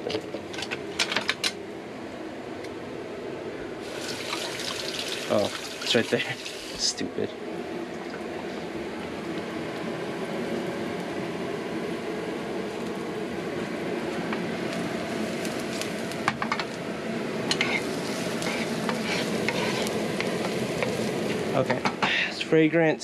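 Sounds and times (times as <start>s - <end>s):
food sizzling in a pan: 3.8s - 7.0s, 14.6s - 16.8s, 17.4s - 22.2s
spatula scraping a pan: 17.5s - 20.9s.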